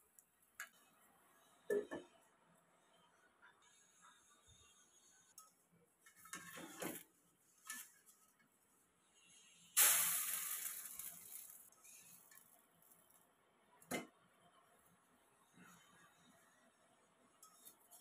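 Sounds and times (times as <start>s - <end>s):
loud hiss: 9.8s - 11.7s.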